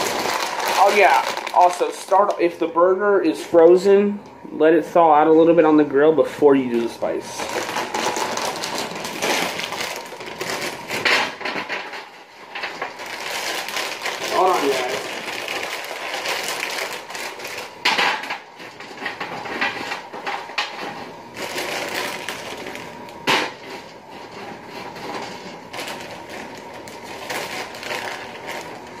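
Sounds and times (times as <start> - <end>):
kitchen knocks and clatters: 10.9 - 13.0, 17.8 - 21.1.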